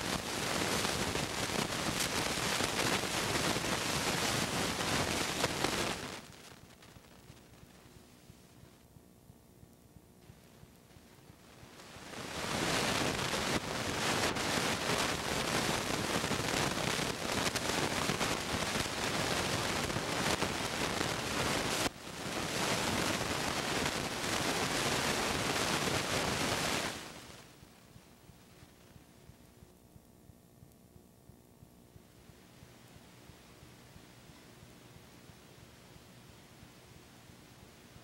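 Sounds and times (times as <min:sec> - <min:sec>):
loud hiss-like rushing noise: 0:00.0 - 0:06.4, 0:11.6 - 0:27.5.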